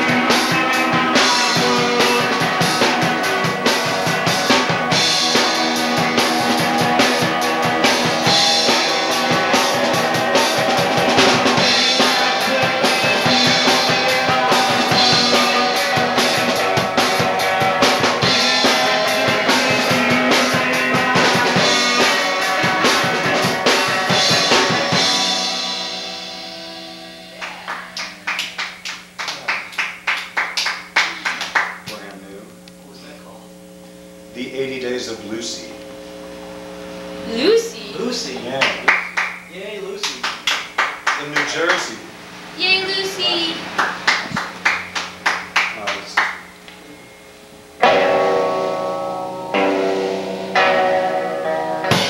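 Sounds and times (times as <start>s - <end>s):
electric guitar and drums rock music: 0.0s - 28.3s, 46.4s - 52.0s
amplifier hum: 0.0s - 52.0s
people clapping: 27.3s - 32.2s, 38.3s - 42.0s, 42.9s - 46.8s.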